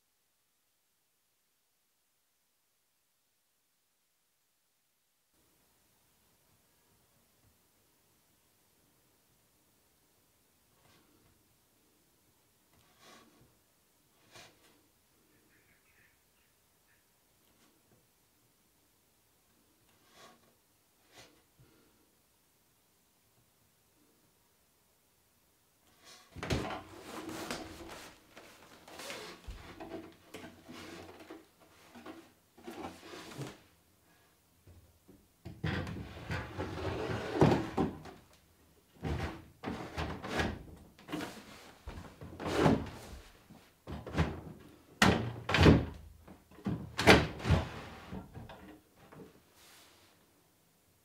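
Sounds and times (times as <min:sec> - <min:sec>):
wood scraping on wood: 0:12.8 - 0:13.4, 0:20.0 - 0:21.4, 0:25.9 - 0:33.6.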